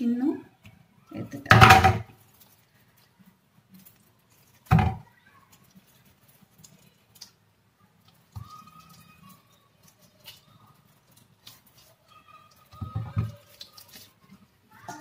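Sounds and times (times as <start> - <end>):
raw chicken pulled apart by hand: 5.4 - 7.4, 8.0 - 14.5.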